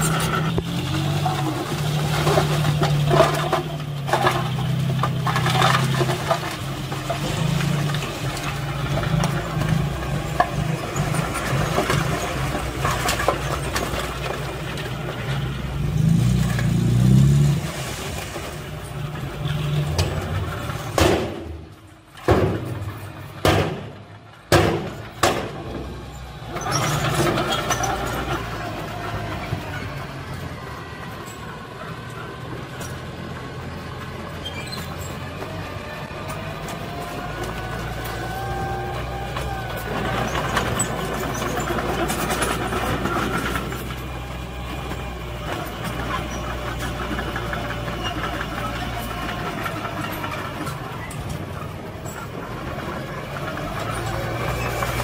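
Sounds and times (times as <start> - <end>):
soil and rocks sliding: 0.0 - 23.4, 24.4 - 55.0
diesel truck engine running: 0.0 - 55.0
sharp knocks: 23.4 - 23.9, 24.5 - 25.7.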